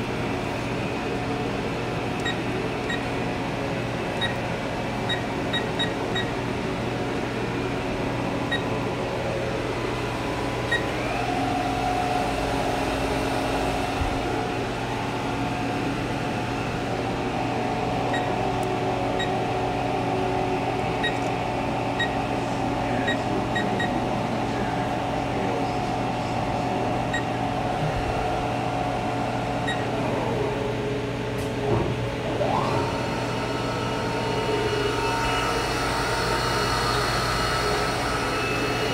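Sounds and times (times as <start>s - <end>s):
machine hum and whine: 0.0s - 38.9s
keypad beeps: 2.2s - 3.1s, 4.2s - 4.4s, 5.1s - 6.3s, 18.1s - 18.4s, 21.0s - 21.3s, 23.1s - 24.0s, 29.7s - 29.9s.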